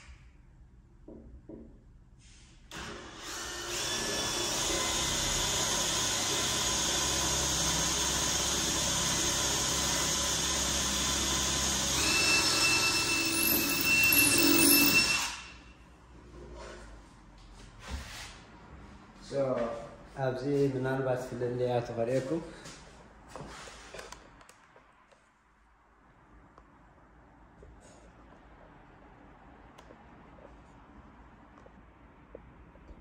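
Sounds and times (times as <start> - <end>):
cordless drill whirring: 2.7 - 15.6.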